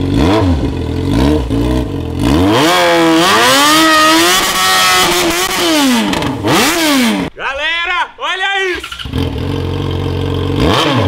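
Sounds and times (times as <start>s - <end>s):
motorcycle engine revving: 0.0s - 7.3s, 8.8s - 11.0s.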